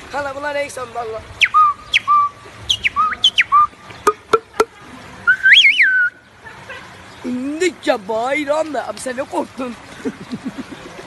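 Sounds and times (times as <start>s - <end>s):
hand whistle bird call: 1.4s - 4.7s, 5.3s - 6.2s.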